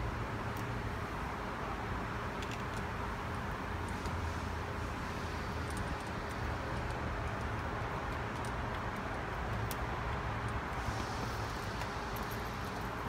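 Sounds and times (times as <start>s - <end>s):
faint constant tone: 0.0s - 13.0s
workshop background hum: 0.0s - 13.0s.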